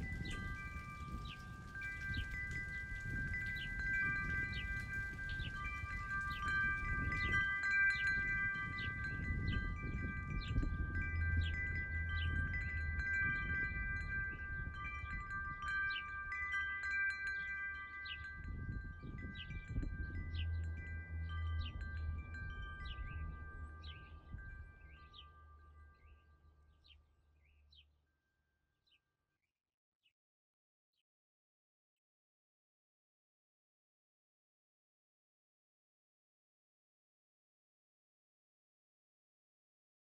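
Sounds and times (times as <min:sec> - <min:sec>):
chimes ringing: 0:00.0 - 0:27.0
low rumble: 0:18.4 - 0:25.2.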